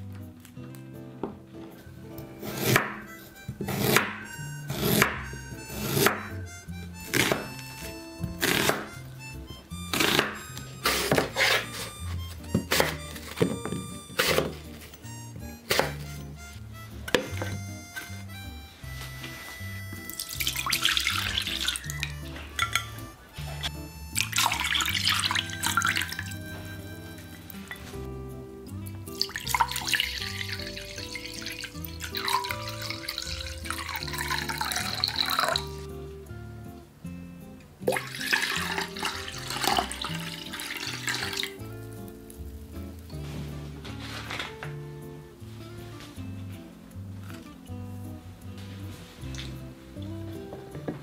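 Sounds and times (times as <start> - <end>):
background music: 0.0 - 51.0
knife slicing on cutting board: 2.4 - 6.2, 7.0 - 7.6, 8.3 - 8.9, 9.9 - 12.0, 12.6 - 14.9, 15.7 - 16.1
liquid pouring into saucepan: 20.2 - 22.9, 24.2 - 26.4, 29.1 - 35.8, 37.9 - 41.6.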